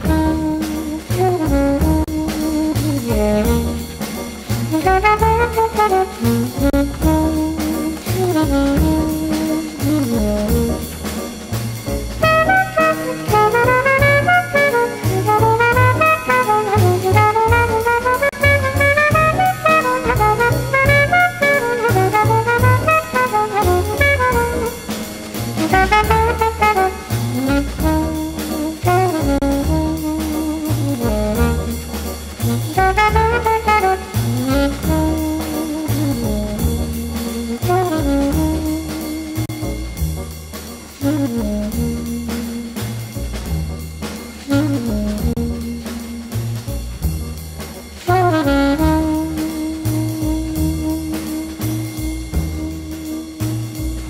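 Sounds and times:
jazz with brass bass and drums: 0.0s - 54.0s.

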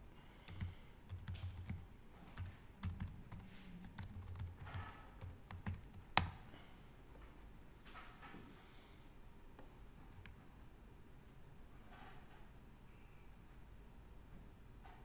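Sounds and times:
computer keyboard typing: 0.4s - 6.4s.

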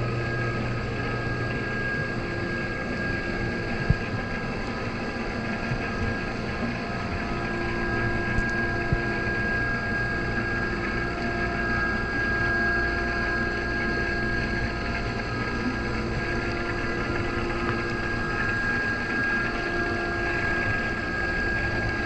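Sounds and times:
muffled underwater hum: 0.0s - 22.0s.

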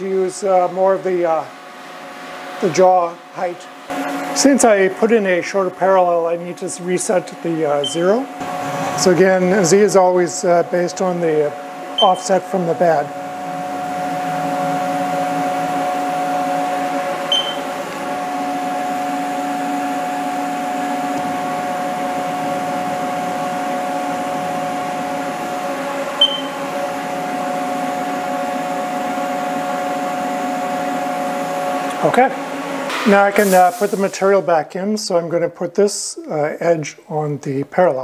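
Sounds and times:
milling machine axis drives whining: 7.2s - 27.8s
short high chirps: 17.3s - 17.6s, 26.2s - 26.6s.

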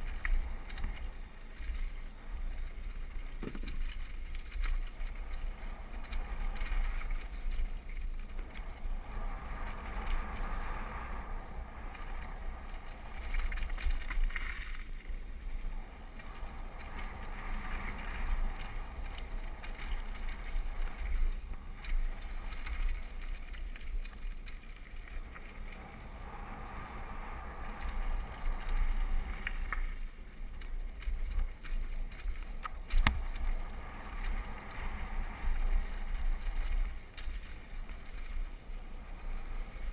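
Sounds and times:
bike rattling and knocking: 3.2s - 8.8s.

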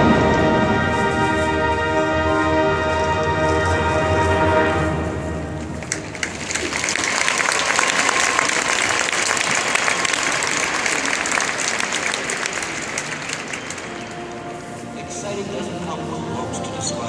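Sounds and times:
audience applauding: 5.6s - 14.5s.

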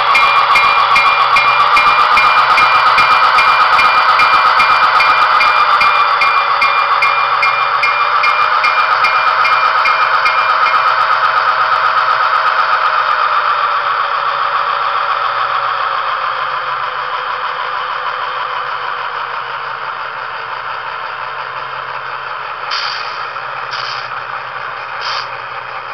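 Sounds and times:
model diesel engine sound winding down: 0.0s - 25.9s
short hiss: 22.7s - 24.1s, 25.0s - 25.3s.

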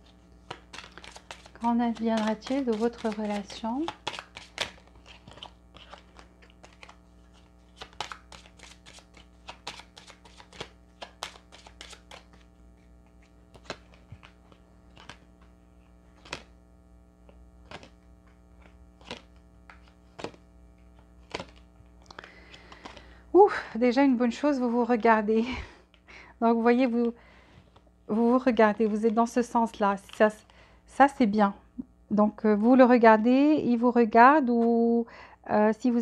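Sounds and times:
steady low hum: 0.0s - 35.9s
cards clicking and tapping on table: 0.4s - 7.0s, 7.7s - 12.4s, 18.6s - 20.4s.

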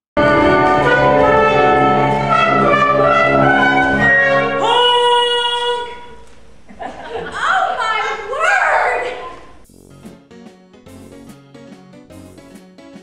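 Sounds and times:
brass band music: 0.2s - 4.9s, 9.6s - 12.7s.

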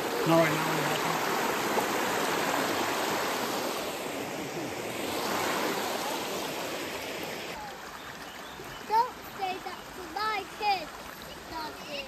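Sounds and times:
river rushing over rocks: 0.0s - 8.2s.

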